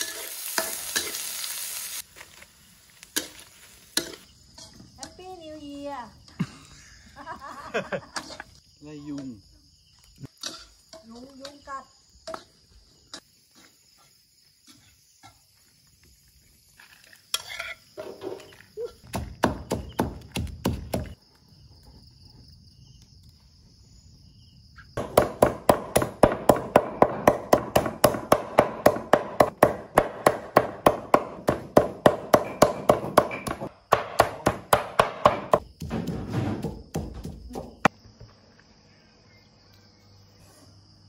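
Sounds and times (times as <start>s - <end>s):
insects trilling: 0.0s - 41.0s
cleaver chopping on wooden board: 19.1s - 21.2s, 25.0s - 37.7s.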